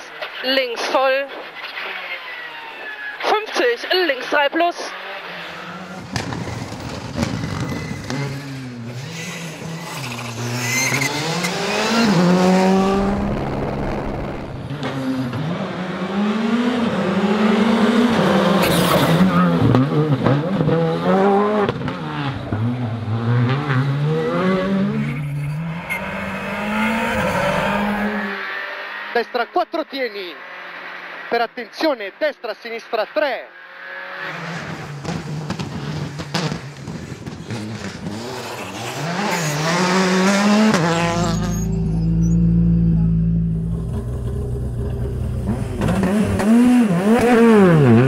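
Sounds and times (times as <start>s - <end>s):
rally car engines revving: 0.0s - 48.0s.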